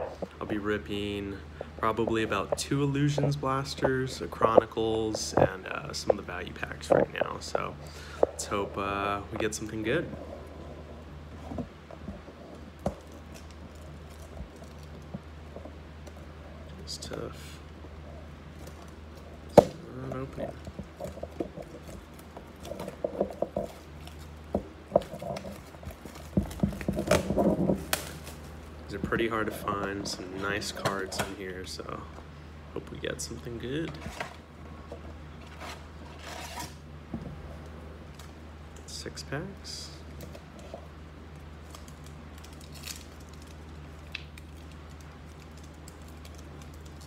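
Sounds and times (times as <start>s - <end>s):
steady low hum: 0.0s - 47.0s
packaging rustling: 18.5s - 31.8s
cardboard boxes tapping and knocking: 24.5s - 28.1s
sharp clicks of packaging: 41.6s - 47.0s.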